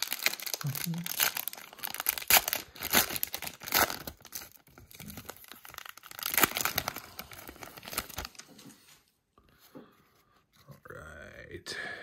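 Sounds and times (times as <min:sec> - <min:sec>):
card pack wrapper tearing: 0:00.0 - 0:08.4.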